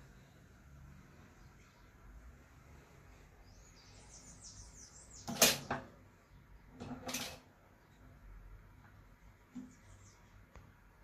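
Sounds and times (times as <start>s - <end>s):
bird chirping: 1.0s - 6.8s, 9.5s - 10.7s.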